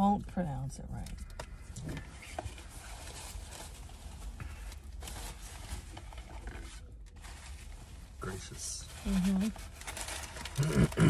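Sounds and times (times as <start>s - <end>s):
food packaging rustling: 9.1s - 11.0s
small clicks and crinkles: 9.2s - 10.8s.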